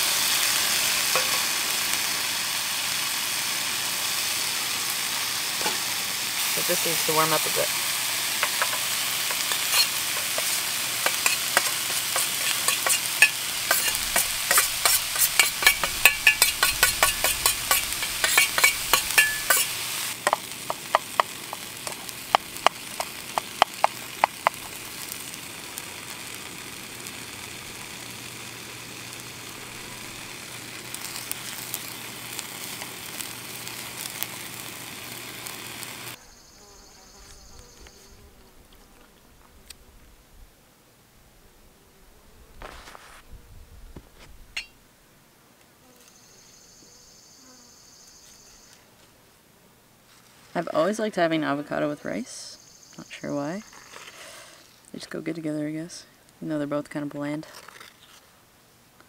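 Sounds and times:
meat sizzling in a frying pan: 0.0 - 36.2
spoon clicking and scraping pan: 8.4 - 24.6.

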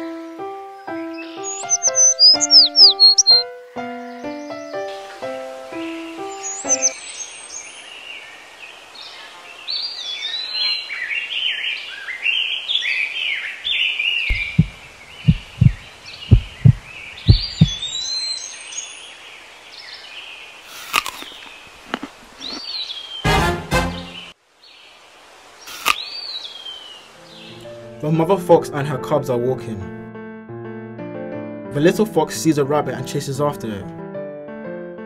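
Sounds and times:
small birds chirping: 0.0 - 23.3, 24.1 - 27.8
dull low thumps: 14.3 - 18.0.

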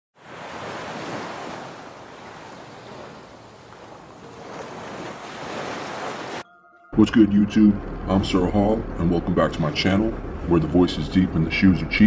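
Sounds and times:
ocean waves breaking on beach: 0.2 - 6.4.

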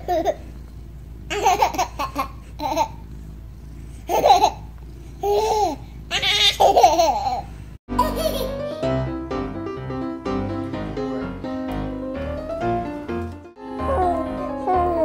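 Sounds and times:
infant laughing: 0.0 - 0.4, 1.3 - 3.0, 4.1 - 8.7.

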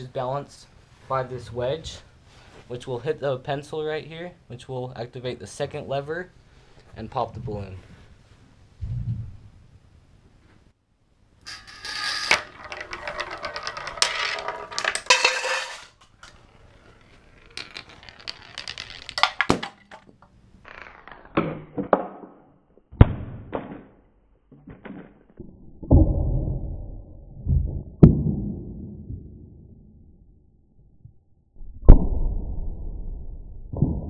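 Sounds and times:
marble rolling down metal rail: 11.4 - 22.5
marbles knocking wooden levers: 11.5 - 22.4.

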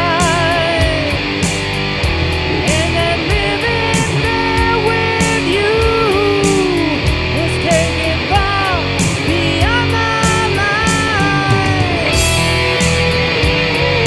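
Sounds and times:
bass: 0.0 - 14.0
drums with cymbal hits: 0.0 - 14.0
rock lead guitar: 0.0 - 14.0.

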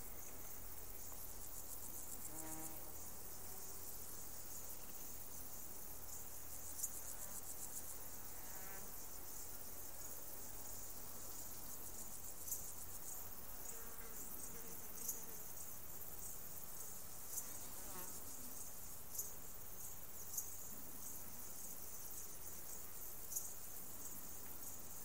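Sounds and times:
high-pitched insect chorus: 0.0 - 25.0.

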